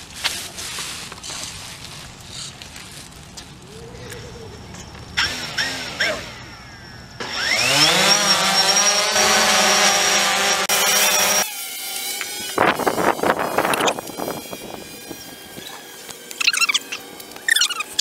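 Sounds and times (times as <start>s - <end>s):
drone propellers buzzing: 3.7s - 18.0s.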